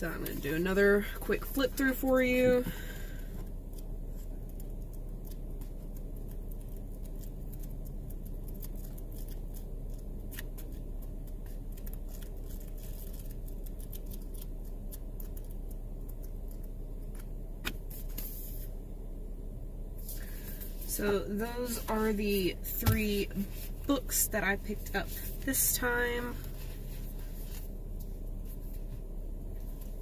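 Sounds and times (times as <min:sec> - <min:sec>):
low steady rumble: 0:00.0 - 0:30.0
book pages flipping: 0:03.7 - 0:18.7, 0:26.3 - 0:30.0.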